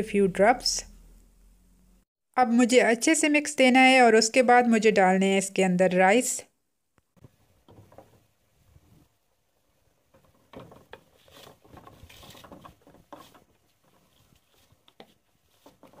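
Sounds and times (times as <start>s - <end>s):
stirring in pot: 10.1s - 16.0s.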